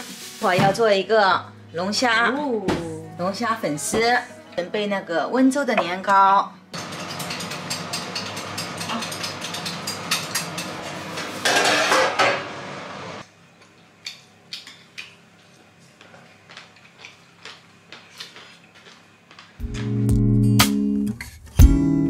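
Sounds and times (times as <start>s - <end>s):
clatter of dishes and utensils: 6.8s - 12.4s.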